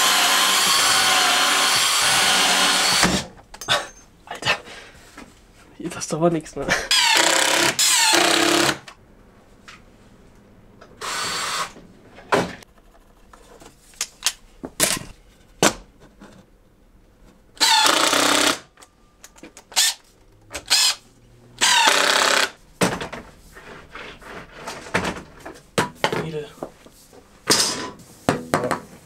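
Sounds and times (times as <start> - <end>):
cordless driver driving screws: 20.6 - 21.0, 21.6 - 22.5.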